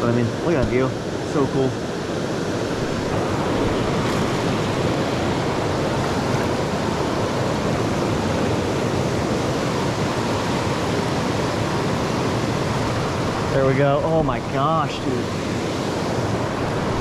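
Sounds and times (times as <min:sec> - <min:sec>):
water rushing over rocks: 0:00.0 - 0:17.0.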